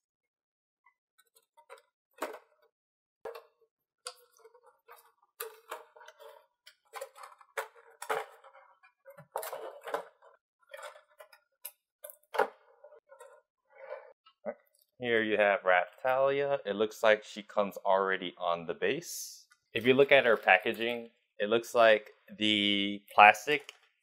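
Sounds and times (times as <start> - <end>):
plastic trays crinkling and clicking: 4.1 - 12.6.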